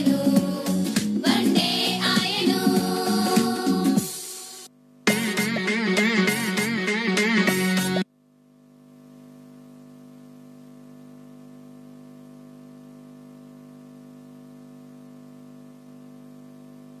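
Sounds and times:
electrical hum of sound system: 0.0 - 17.0.

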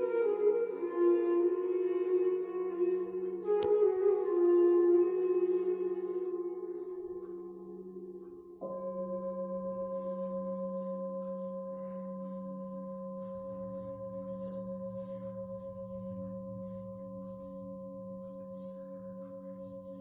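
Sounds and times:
singing bowl ringing: 4.3 - 20.0.

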